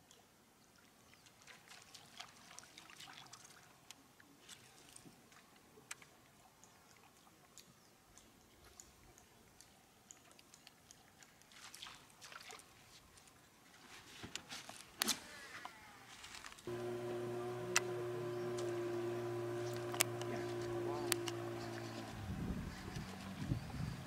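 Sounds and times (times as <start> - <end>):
lure ticking and splashing on water: 0.0 - 13.4.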